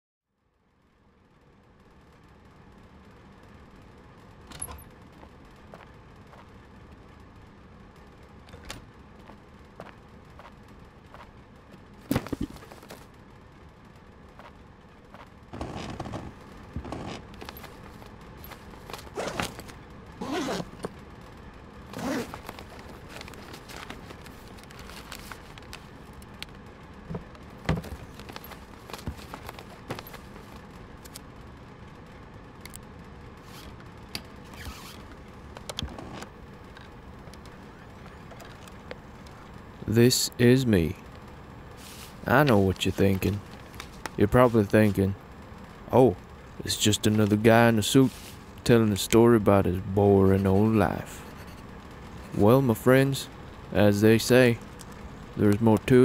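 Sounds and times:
steady low hiss: 0:00.5 - 0:56.0
rustling and scraping: 0:15.2 - 0:21.0, 0:21.9 - 0:26.0, 0:27.1 - 0:31.2
bag zipping: 0:19.1 - 0:20.7, 0:21.9 - 0:22.6.

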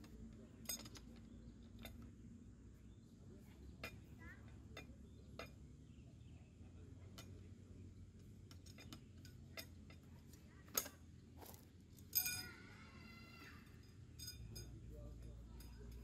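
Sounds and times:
metallic clink: 0:00.0 - 0:02.1, 0:08.2 - 0:11.0, 0:12.0 - 0:12.7, 0:13.5 - 0:16.0
metal poles clicking and knocking: 0:00.0 - 0:02.2, 0:03.4 - 0:05.8, 0:07.0 - 0:12.7, 0:13.4 - 0:16.0.

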